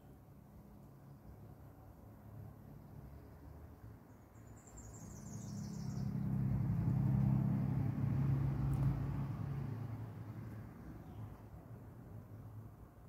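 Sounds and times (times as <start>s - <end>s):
bird chirping: 4.1s - 6.2s
passing vehicle hum: 4.8s - 13.0s.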